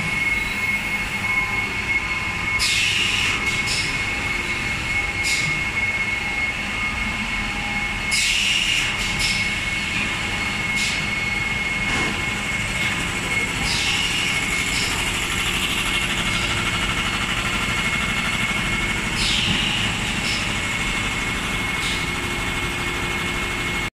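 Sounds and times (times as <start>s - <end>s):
thin high whine: 0.0s - 9.0s.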